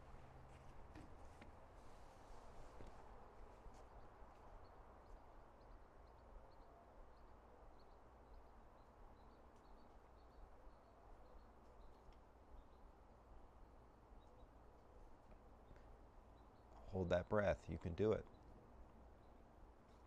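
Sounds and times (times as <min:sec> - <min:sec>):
small bird chirping: 0:04.6 - 0:12.9.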